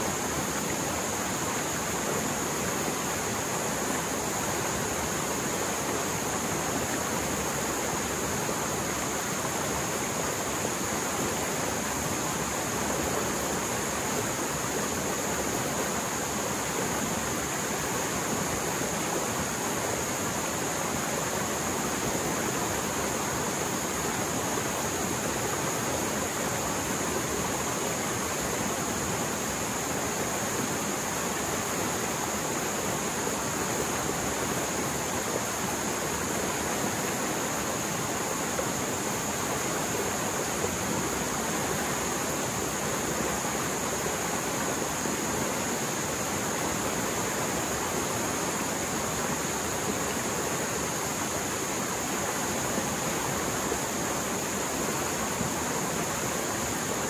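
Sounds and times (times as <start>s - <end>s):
stream water roaring: 0.0s - 57.0s.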